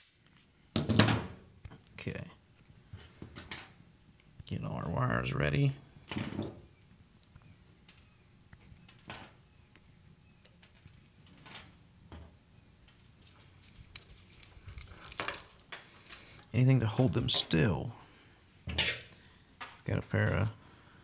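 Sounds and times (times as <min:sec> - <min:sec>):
wire pieces and tools clinking: 0:13.2 - 0:17.7.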